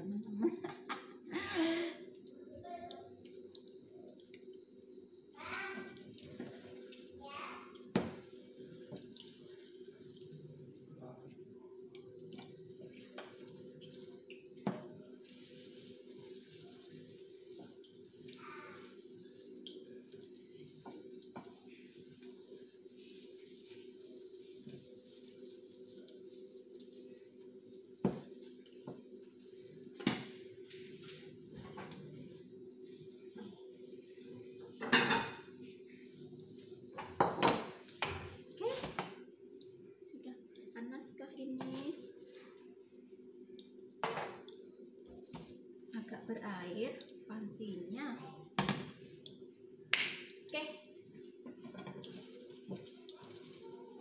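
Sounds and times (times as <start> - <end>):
egg sizzling in oil: 11.3 - 54.0
pans and utensils clattering: 34.7 - 35.5, 37.0 - 39.2.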